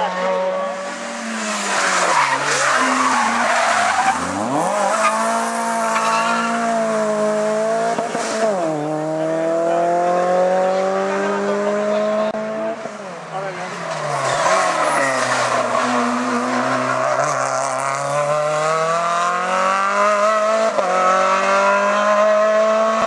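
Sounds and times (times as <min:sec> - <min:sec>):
race car engine at high revs: 0:00.0 - 0:23.0
tyre squeal: 0:01.8 - 0:06.7, 0:14.0 - 0:16.2.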